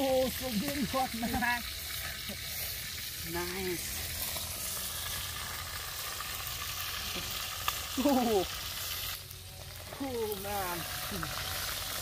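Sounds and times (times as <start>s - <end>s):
meat sizzling in a pot: 0.0s - 12.0s
man exclaiming: 8.0s - 8.5s.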